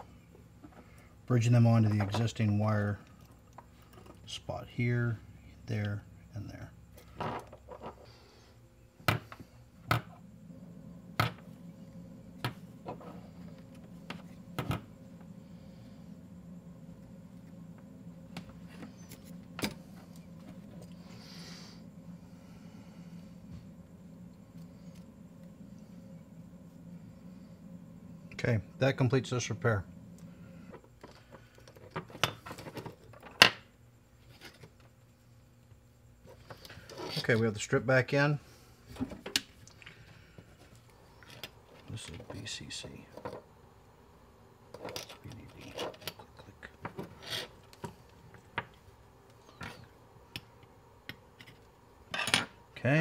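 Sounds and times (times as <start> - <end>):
low hum: 0.0 - 36.8.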